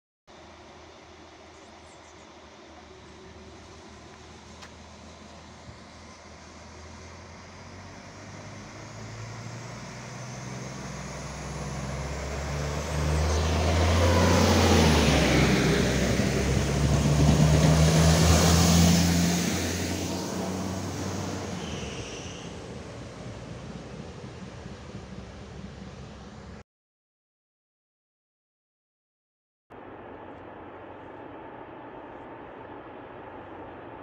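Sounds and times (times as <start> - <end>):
train engine hum: 0.3 - 26.6, 29.8 - 34.0
wheels rumbling on rail: 0.3 - 26.6.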